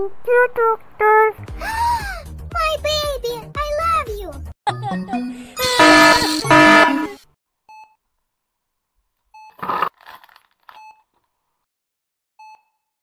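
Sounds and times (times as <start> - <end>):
short electronic beeps: 5.6 - 7.9
foil sachet crinkling: 9.6 - 11.2.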